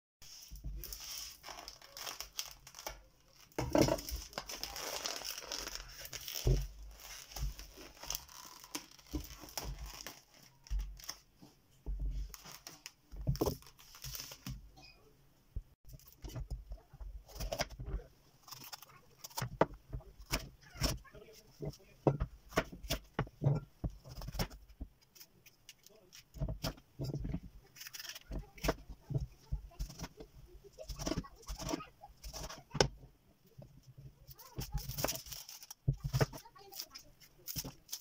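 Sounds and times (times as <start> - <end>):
plastic film crinkling and tearing: 0.8 - 11.3, 12.2 - 14.6, 18.4 - 21.4, 24.0 - 32.8, 34.2 - 38.0.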